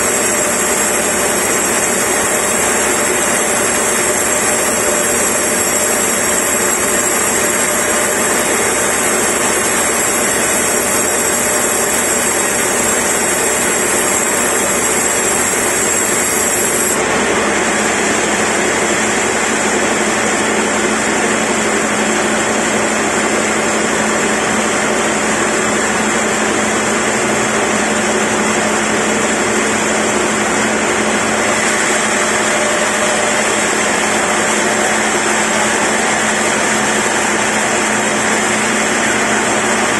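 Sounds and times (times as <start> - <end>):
band saw sawing log: 0.0 - 17.0.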